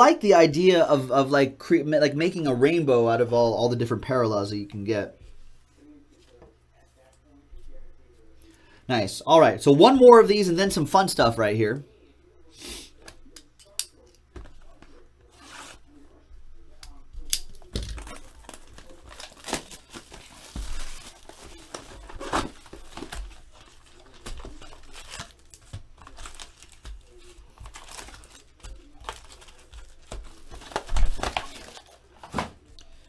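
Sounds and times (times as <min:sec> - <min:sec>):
plastic wrap and foil crinkling: 0:17.2 - 0:32.8.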